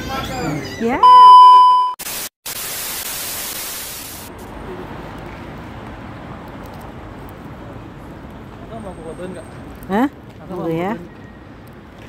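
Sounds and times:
street noise: 3.4 - 12.0.

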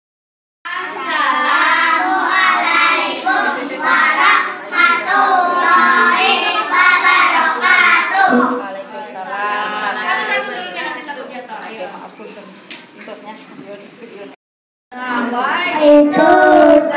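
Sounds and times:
children singing together: 0.9 - 8.6, 15.0 - 16.9
voice through a microphone: 15.0 - 16.9.

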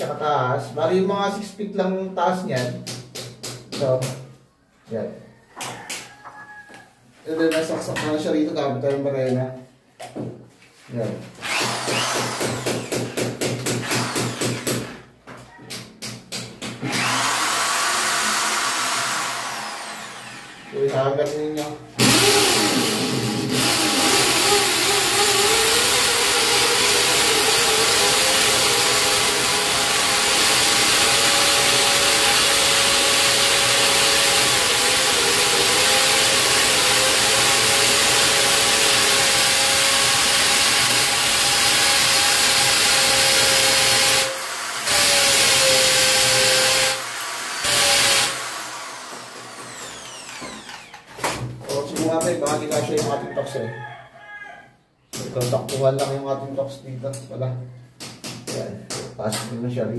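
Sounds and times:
electric drill boring into tile: 11.4 - 14.8, 16.9 - 20.8, 22.0 - 51.1.

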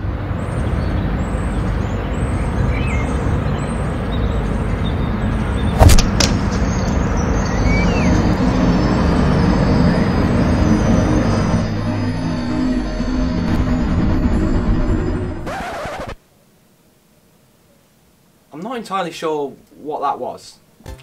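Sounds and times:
urban background rumble and hiss: 0.0 - 14.6, 16.2 - 20.8
sharp knocks: 5.8 - 6.6.

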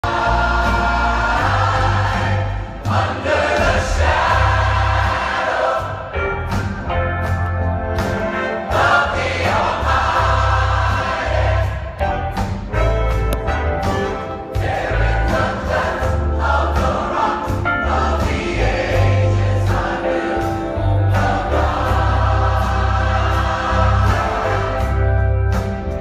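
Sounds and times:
choir singing gospel: 0.0 - 7.3, 8.0 - 12.6, 13.8 - 26.0
deep bass line: 20.8 - 26.0.

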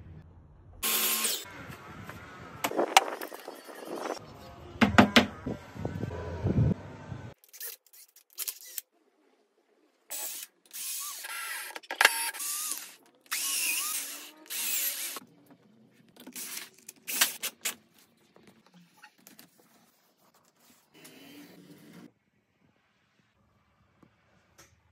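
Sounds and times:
cordless drill driving screws: 10.1 - 15.2.

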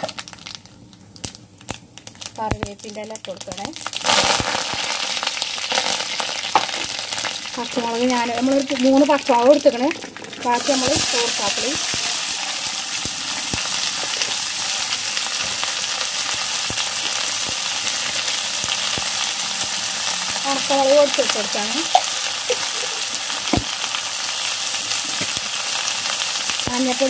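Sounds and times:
food sizzling in hot oil: 0.0 - 27.0
oil spattering pops: 23.4 - 23.8.

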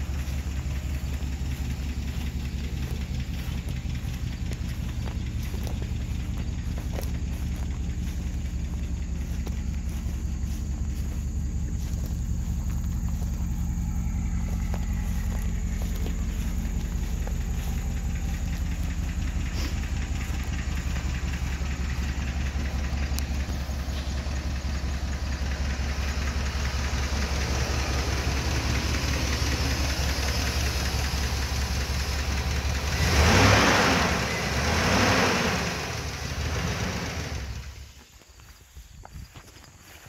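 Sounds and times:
engine revving: 0.0 - 37.8
pickup truck engine idling: 0.0 - 40.0.

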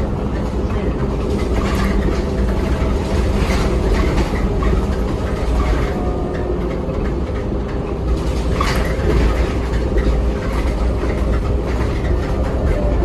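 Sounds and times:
bus engine and road rumble: 0.0 - 13.0
body and fittings rattling: 0.1 - 13.0.

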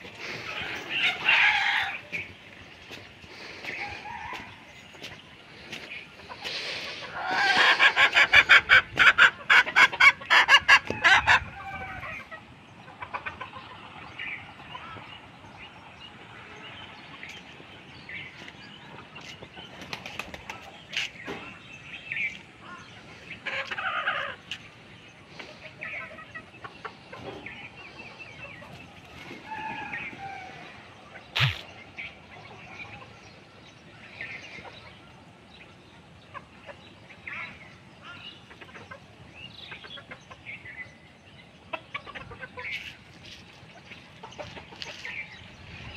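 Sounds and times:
chickens squawking: 0.0 - 15.1, 22.6 - 33.1, 36.3 - 40.8, 41.6 - 45.9
chickens clucking and chirping: 0.0 - 45.9
wings flapping: 19.7 - 20.8.

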